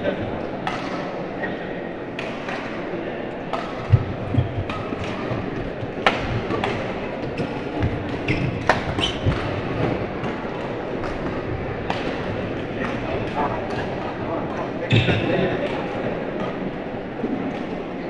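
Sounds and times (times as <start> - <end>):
murmur of voices: 0.0 - 18.0
racket hitting shuttlecock: 0.6 - 1.2, 2.1 - 15.8.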